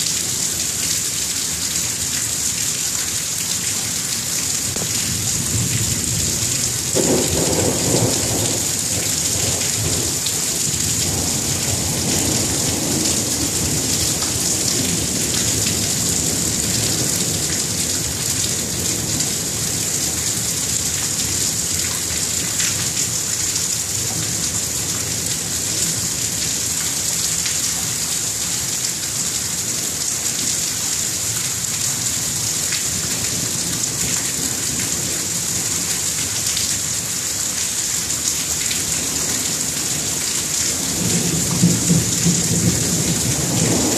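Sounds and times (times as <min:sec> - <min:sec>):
steady rain falling: 0:00.0 - 0:43.9
low rumble of thunder: 0:04.7 - 0:22.6, 0:39.2 - 0:43.9.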